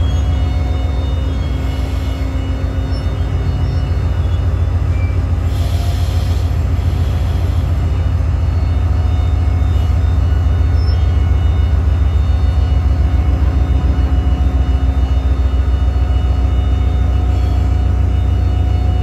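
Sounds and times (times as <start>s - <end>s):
locomotive engine throbbing: 0.0s - 19.0s.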